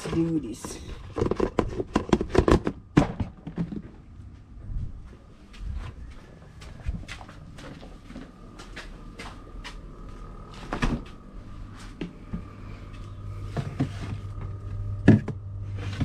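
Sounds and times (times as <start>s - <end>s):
fridge humming: 0.0s - 16.0s
refrigerator door opening: 10.6s - 11.2s.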